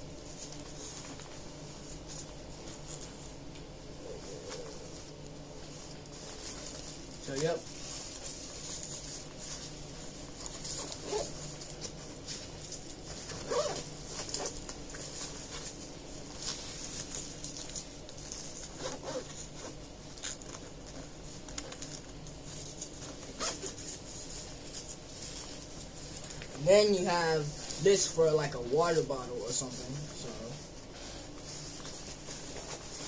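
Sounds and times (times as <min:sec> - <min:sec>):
fabric rustling: 0:00.0 - 0:33.0
zippers opening and closing: 0:11.0 - 0:11.4, 0:13.4 - 0:14.6.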